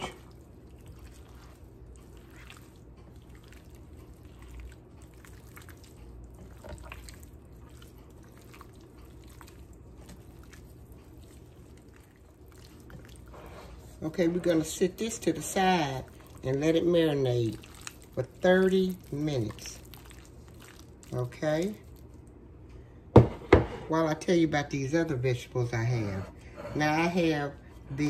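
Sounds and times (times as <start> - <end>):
wet squelching of marinated chicken: 0.0 - 22.4.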